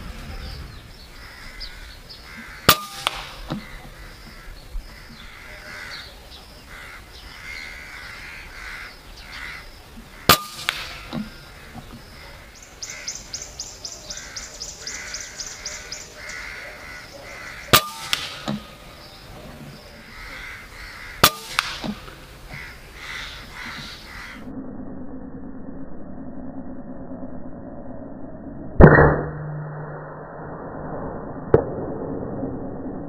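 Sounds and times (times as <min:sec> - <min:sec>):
crows cawing: 0:01.1 - 0:24.5
air rifle shots: 0:02.6 - 0:03.8, 0:10.2 - 0:11.8, 0:17.5 - 0:19.2, 0:21.1 - 0:22.5.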